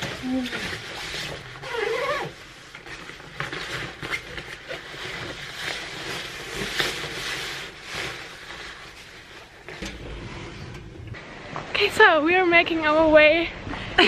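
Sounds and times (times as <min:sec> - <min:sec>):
padded jacket and backpack rustling: 0:00.0 - 0:09.8.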